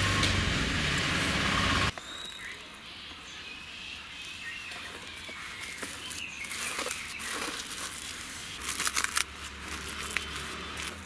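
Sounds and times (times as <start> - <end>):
cling film crinkling: 4.9 - 11.0.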